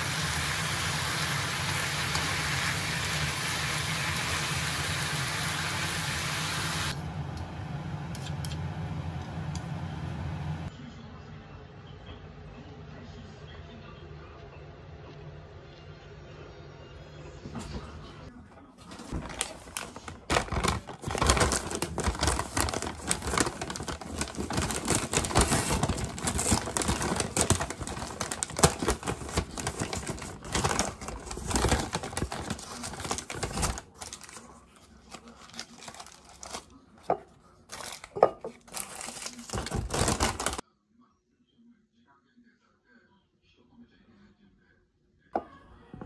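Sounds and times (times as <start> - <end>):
paper bag crinkling: 18.8 - 40.6.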